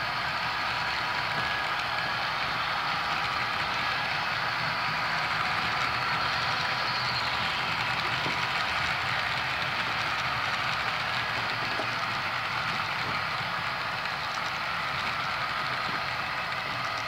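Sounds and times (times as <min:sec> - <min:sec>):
model train wheels whirring on rails: 0:00.0 - 0:17.0.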